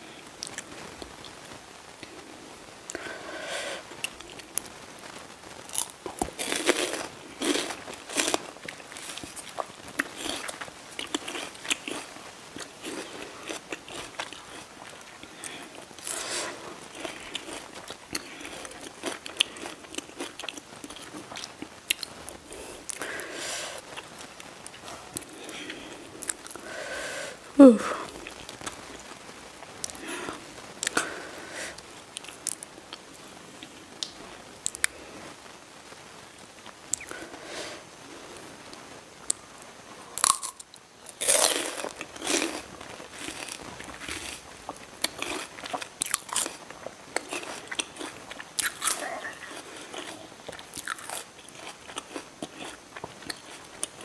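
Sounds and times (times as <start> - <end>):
sharp crackly crunches: 3.8 - 23.2, 28.1 - 31.2, 38.7 - 54.0
chewing crisp juicy fruit: 5.7 - 26.6, 40.2 - 54.0.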